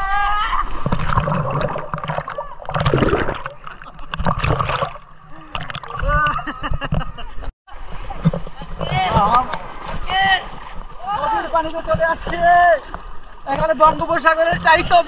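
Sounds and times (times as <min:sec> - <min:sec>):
water splashing and churning: 0:00.0 - 0:15.0.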